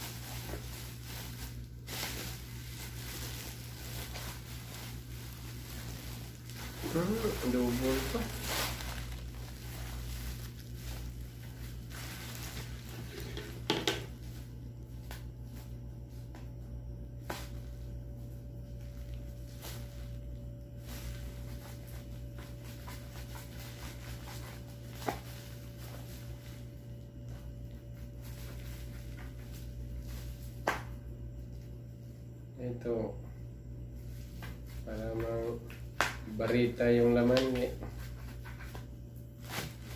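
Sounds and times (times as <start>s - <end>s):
bubble wrap crinkling and clicking: 0.0s - 15.4s, 20.8s - 30.9s, 34.4s - 39.9s
steady low hum: 0.0s - 39.9s.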